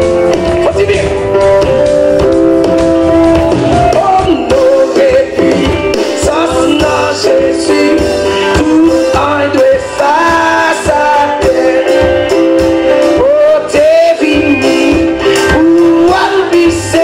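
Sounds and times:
bass guitar: 0.0 - 17.0
drums: 0.0 - 17.0
electric guitar: 0.0 - 17.0
man singing into a microphone: 3.7 - 17.0.

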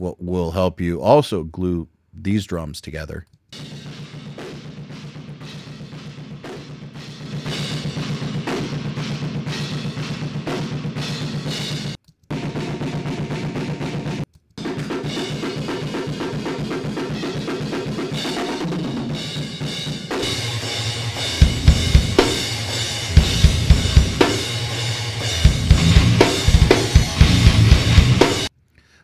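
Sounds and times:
deathcore band playing: 3.6 - 28.5
heavy kick drum hits: 21.4 - 24.4, 25.4 - 28.5.

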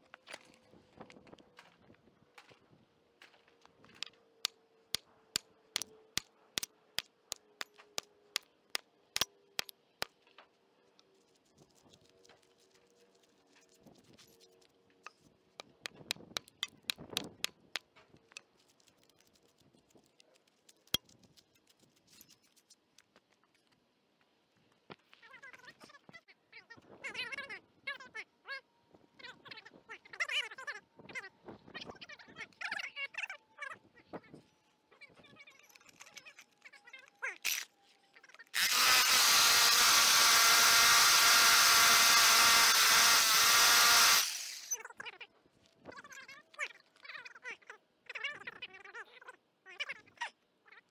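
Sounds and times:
concrete chunks clicking together: 5.4 - 6.7, 15.6 - 21.6
hammer drill boring into concrete: 38.6 - 44.8.

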